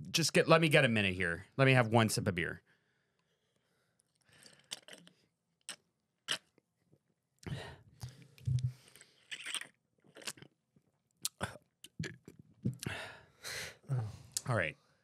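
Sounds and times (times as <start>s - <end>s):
person gulping beer: 4.5s - 6.5s, 7.4s - 10.6s, 11.2s - 13.0s.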